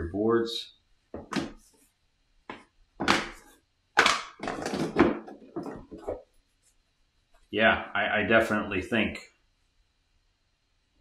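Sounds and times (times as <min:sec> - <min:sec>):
cardboard boards knocking and rustling: 0:01.2 - 0:01.7, 0:02.5 - 0:06.3.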